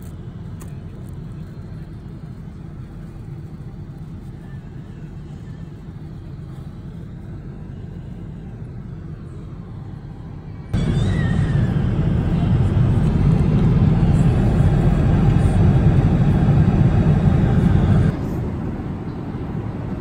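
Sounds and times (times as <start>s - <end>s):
airplane cabin rumble: 0.0s - 20.0s.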